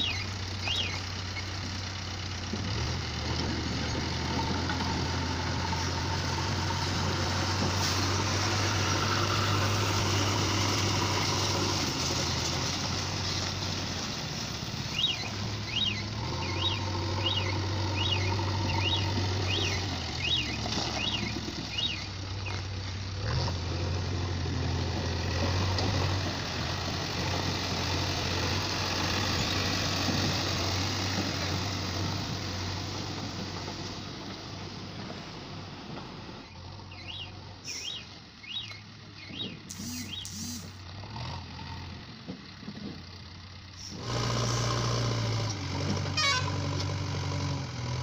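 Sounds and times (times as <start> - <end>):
diesel engine revving: 0.0 - 48.0
short high chirps: 37.7 - 38.1, 39.7 - 40.8.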